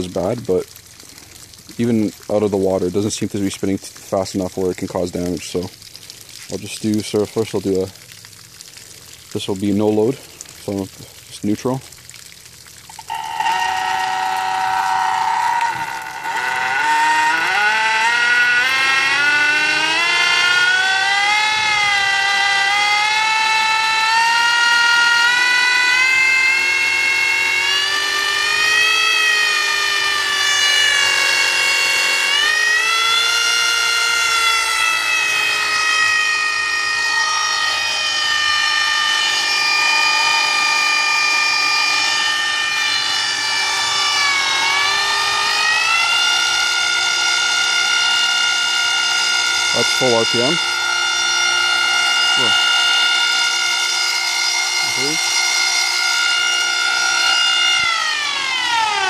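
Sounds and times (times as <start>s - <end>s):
electric motor high whine: 12.9s - 59.0s.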